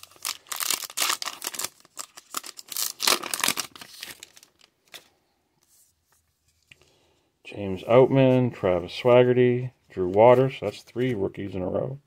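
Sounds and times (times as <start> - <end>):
plastic wrapper crinkling: 0.0 - 5.1.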